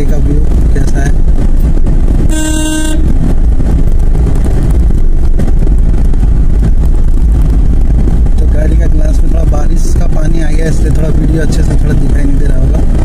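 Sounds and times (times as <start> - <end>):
vehicle rumbling along road: 0.0 - 13.0
vehicle horn: 2.3 - 3.2.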